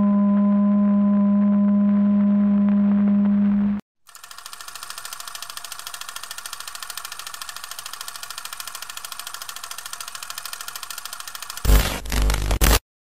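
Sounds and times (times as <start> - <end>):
film projector clattering: 4.1 - 11.7.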